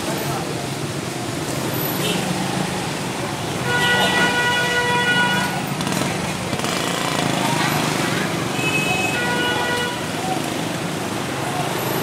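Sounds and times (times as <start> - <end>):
scooter engines running: 0.0 - 12.0
vehicle horn: 3.6 - 5.6, 8.6 - 10.1.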